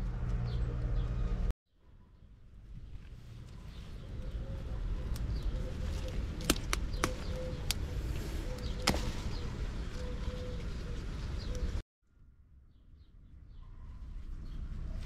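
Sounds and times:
faint birds calling: 3.5s - 11.8s.

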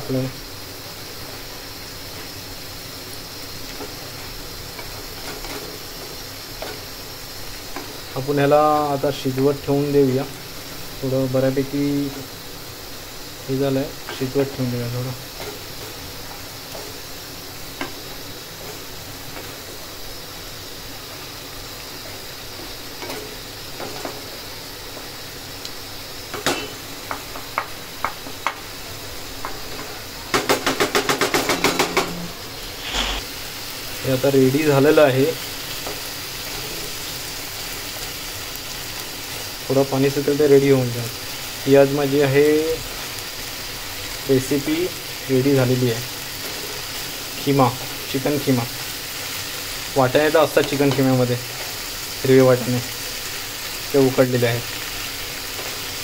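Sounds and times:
food sizzling in a pan: 0.0s - 56.0s
spatula scraping a pan: 31.8s - 33.3s.

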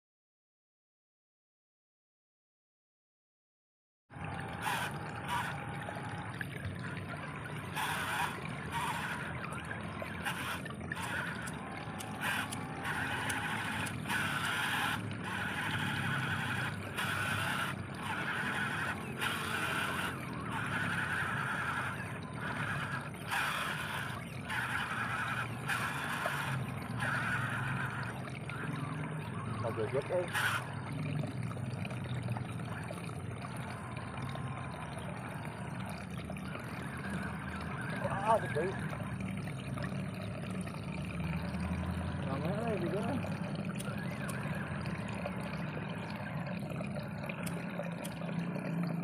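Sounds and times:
water trickling and gurgling: 4.1s - 49.0s.

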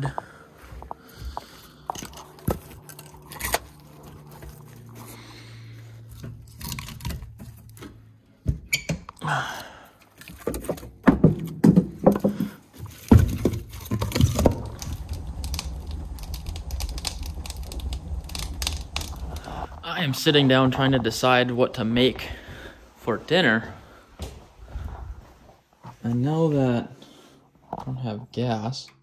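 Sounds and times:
fire rumbling and crackling: 0.0s - 8.2s, 12.3s - 24.0s.

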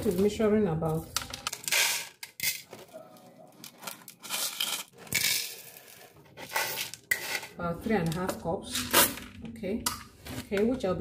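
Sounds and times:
dry beans rattling: 1.0s - 7.6s.

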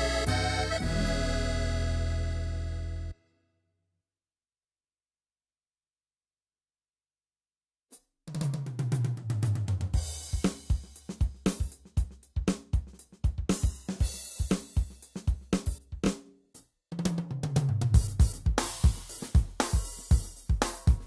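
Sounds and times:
keyboard drum kit groove: 0.0s - 2.5s, 7.9s - 21.0s.

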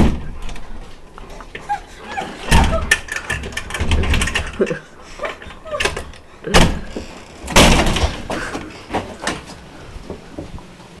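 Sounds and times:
door banging: 0.0s - 0.7s, 2.2s - 4.8s, 5.7s - 8.6s.

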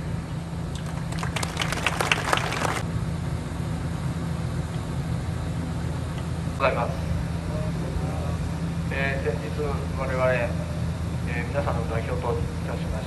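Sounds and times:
steady low hum: 0.0s - 13.0s
crowd clapping: 0.7s - 2.8s.

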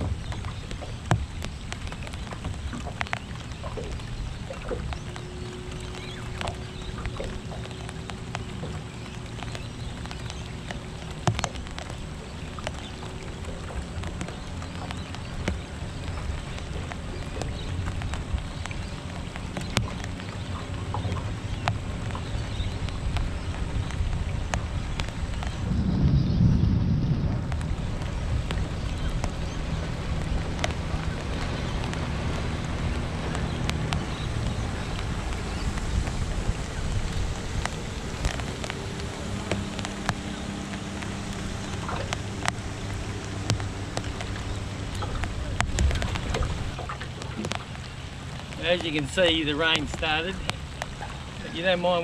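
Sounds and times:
low rumble: 0.0s - 52.0s
rain ticking on metal boat: 0.0s - 52.0s
rain hissing: 29.2s - 52.0s.

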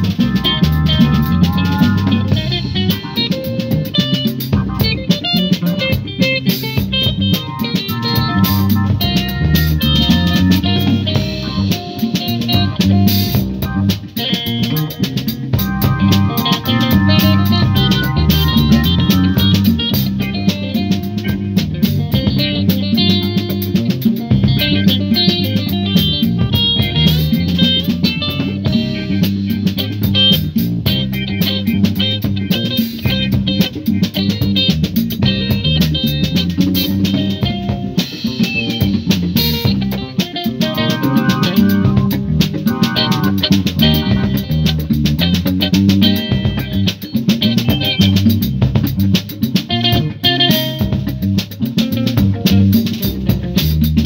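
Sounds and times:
drum kit: 0.0s - 54.0s
electric bass line: 0.0s - 54.0s
guitar: 0.0s - 54.0s.

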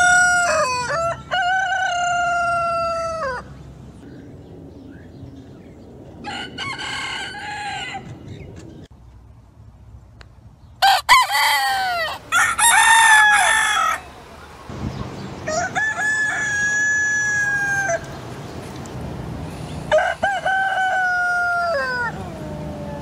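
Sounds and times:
rooster crowing: 0.0s - 3.6s, 6.2s - 8.3s, 10.8s - 14.4s, 15.4s - 18.1s, 19.9s - 23.0s.

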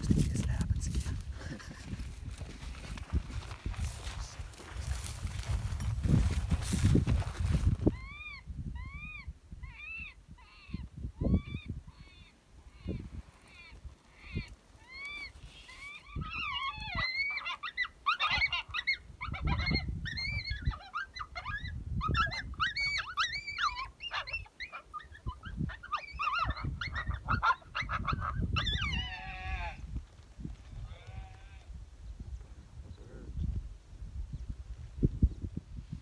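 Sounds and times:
coyotes yipping and howling: 7.9s - 29.8s.

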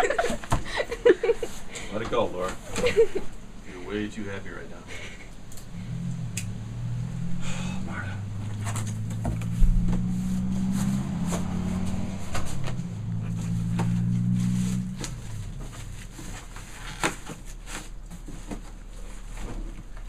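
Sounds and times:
low hum: 5.2s - 16.9s
thump: 9.2s - 10.1s
cardboard and plastic rustling: 12.2s - 20.0s.

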